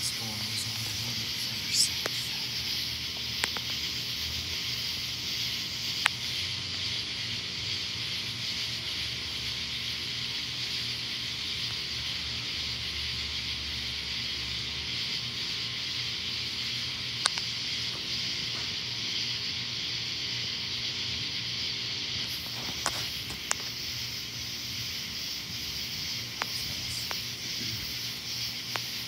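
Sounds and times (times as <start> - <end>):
night insect chorus: 0.0 - 29.0
sharp clicks: 3.4 - 3.8, 17.2 - 17.5, 26.3 - 27.3.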